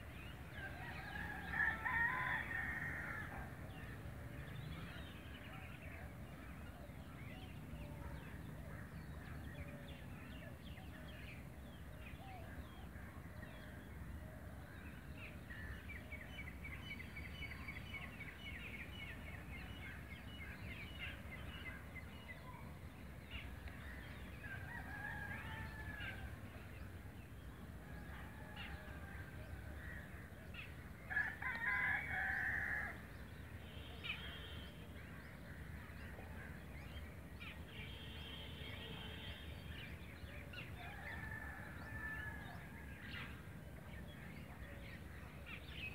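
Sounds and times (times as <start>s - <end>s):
rooster crowing: 0.6s - 3.4s, 24.5s - 26.3s.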